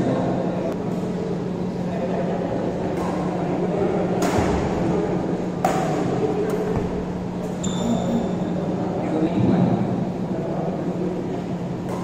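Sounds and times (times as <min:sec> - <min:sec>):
steady low hum: 0:00.0 - 0:12.0
racket hitting shuttlecock: 0:04.2 - 0:04.7, 0:05.6 - 0:07.6
high squeak: 0:07.6 - 0:08.4.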